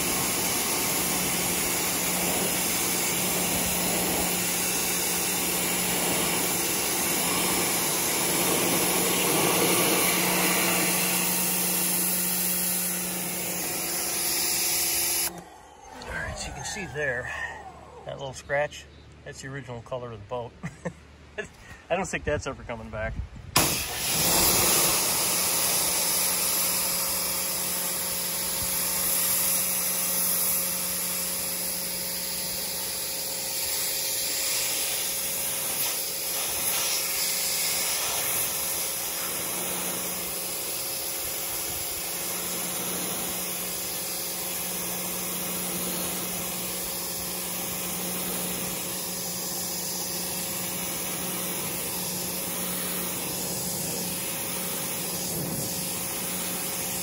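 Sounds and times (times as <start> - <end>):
pressure washer water jet hissing: 0.0 - 18.1, 23.6 - 57.0
low motor hum: 0.0 - 19.2, 38.5 - 57.0.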